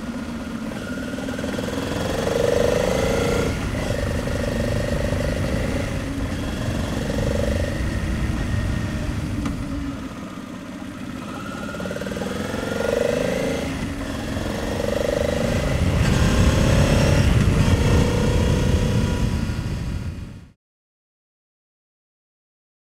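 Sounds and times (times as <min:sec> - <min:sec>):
motorcycle engine: 0:00.0 - 0:20.6
low wind rumble: 0:01.6 - 0:11.2, 0:12.4 - 0:20.5.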